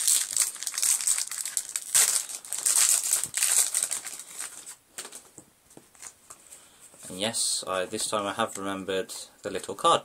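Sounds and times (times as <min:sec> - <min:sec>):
foil wrapper crinkling: 0:00.0 - 0:05.3.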